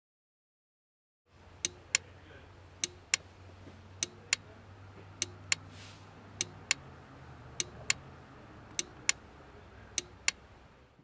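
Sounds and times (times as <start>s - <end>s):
turn signal relay clicking: 1.5s - 2.1s, 2.8s - 3.3s, 4.0s - 4.5s, 5.2s - 5.7s, 6.4s - 6.8s, 7.6s - 8.0s, 8.7s - 9.2s, 9.9s - 10.5s.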